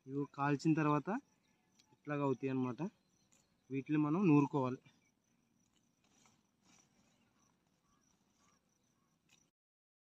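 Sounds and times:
faint high insect drone: 0.0s - 9.6s
hands scraping in soil: 5.6s - 9.5s.

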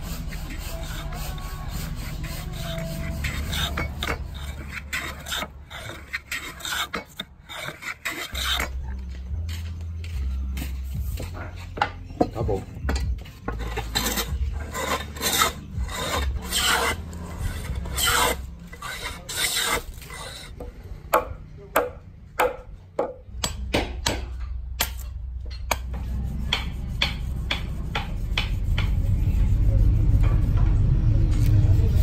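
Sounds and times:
hand plane shaving wood: 0.0s - 8.8s, 13.4s - 20.6s
blade rubbed on whetstone: 0.0s - 9.0s, 13.5s - 20.6s, 26.0s - 30.5s.

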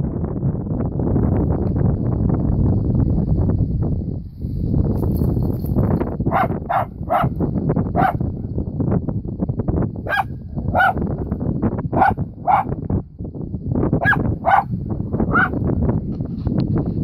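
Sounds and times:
dog barking sharply: 6.3s - 7.3s, 12.0s - 12.7s, 14.0s - 14.7s.

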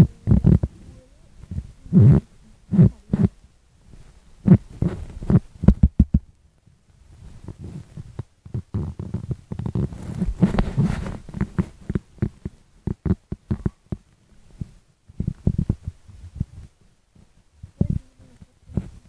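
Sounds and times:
phone handling thumps and rubbing: 9.6s - 14.0s.

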